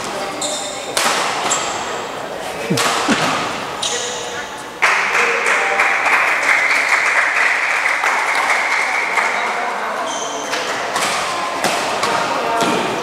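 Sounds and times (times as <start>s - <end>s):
spectators applauding: 4.8s - 9.7s.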